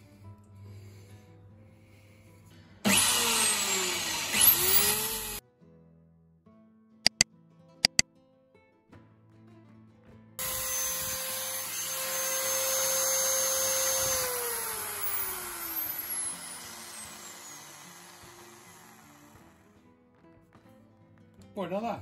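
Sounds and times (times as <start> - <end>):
electric drill whining: 2.9 - 5.4, 10.4 - 19.7.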